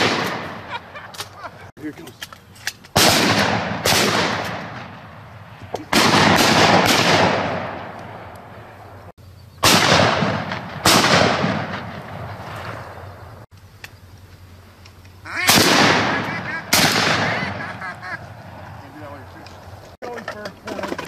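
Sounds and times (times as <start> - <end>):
shotgun shots echoing: 0.0 - 0.7, 2.9 - 5.2, 5.8 - 8.6, 9.6 - 13.0, 15.4 - 17.8.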